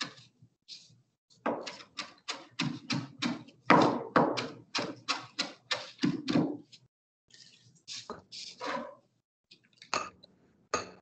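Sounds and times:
knife chopping on cutting board: 1.5s - 6.6s.

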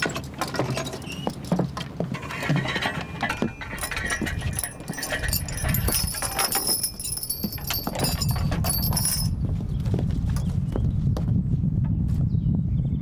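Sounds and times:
gear clattering: 0.0s - 9.4s
metallic jingling: 0.0s - 9.5s
boots knocking on wooden platform: 1.2s - 2.7s.

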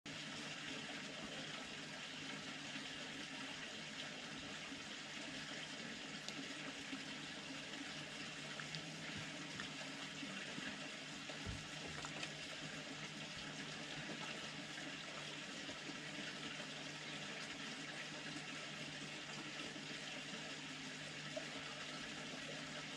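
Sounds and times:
fox chewing: 11.4s - 12.4s.

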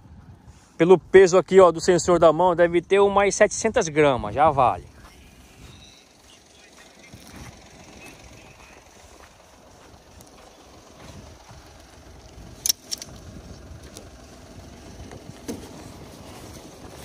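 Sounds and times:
steady low rumble: 0.0s - 17.0s
sharp metallic click: 12.6s - 13.2s.

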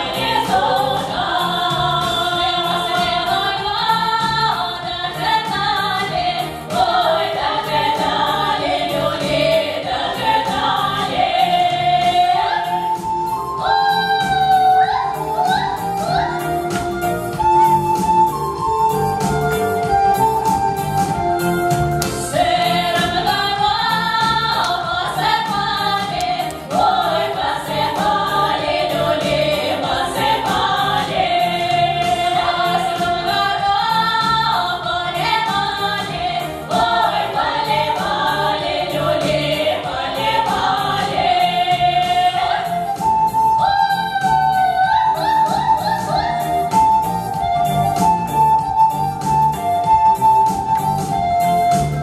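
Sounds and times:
women singing together: 0.0s - 18.1s, 22.1s - 48.1s
instrumental accompaniment with beat: 0.0s - 52.0s.

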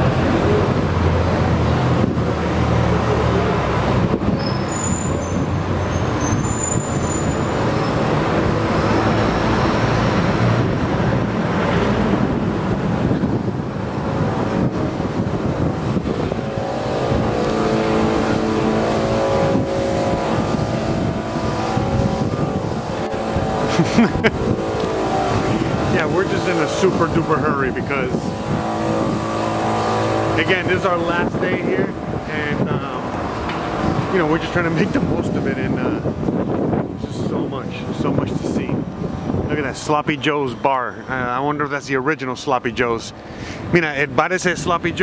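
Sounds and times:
street traffic: 0.0s - 45.0s.

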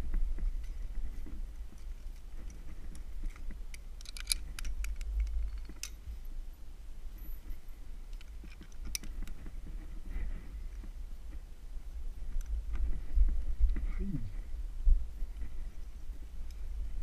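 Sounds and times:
metal climbing hardware clicking: 1.8s - 6.0s.

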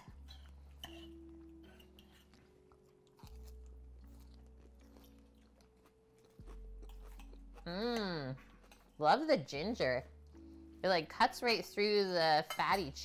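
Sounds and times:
faint lo-fi music: 0.0s - 13.0s
quiet chewing: 0.1s - 9.0s.

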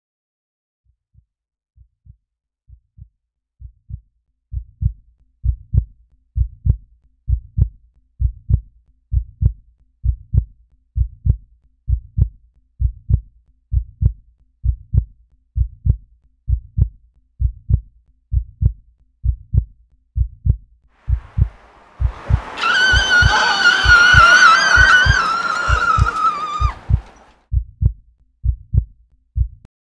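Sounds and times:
heartbeat thumps: 2.0s - 22.5s, 26.8s - 29.7s.

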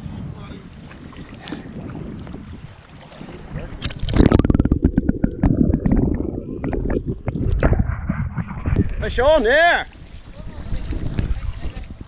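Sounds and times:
water sloshing and gurgling: 0.0s - 12.0s
fast clicks and splashes: 3.8s - 7.8s.

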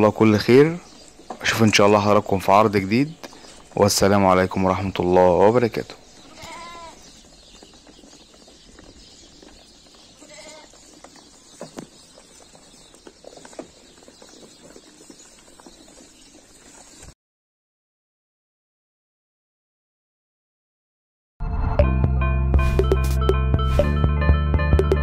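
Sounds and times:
sheep bleating: 6.2s - 7.0s, 10.2s - 10.8s.

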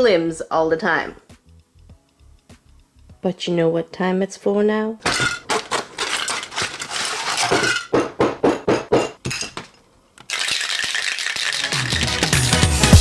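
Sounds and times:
spray cans clinking: 5.0s - 8.1s, 9.0s - 12.6s.

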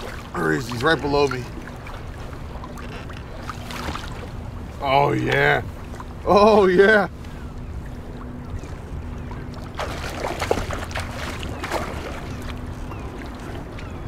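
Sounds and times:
low wind rumble: 0.0s - 14.0s
water lapping around kayak: 0.0s - 14.0s
fish thrashing and splashing: 9.6s - 12.7s.

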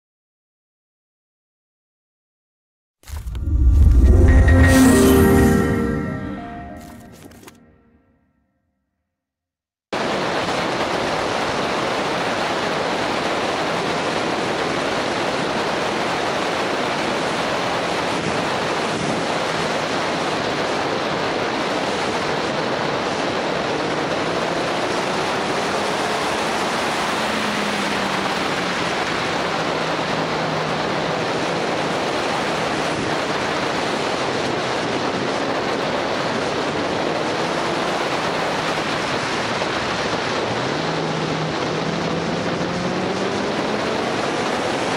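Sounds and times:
wind rushing over microphone: 28.0s - 44.9s.

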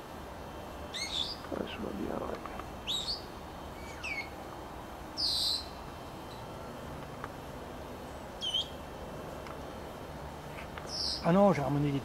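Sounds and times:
parrot whistling: 8.4s - 8.8s.

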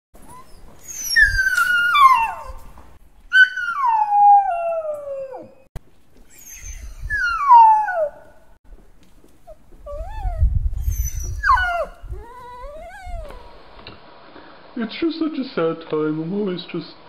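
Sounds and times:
dog whining: 0.2s - 2.7s, 3.3s - 5.6s, 6.3s - 8.3s, 9.4s - 13.6s.

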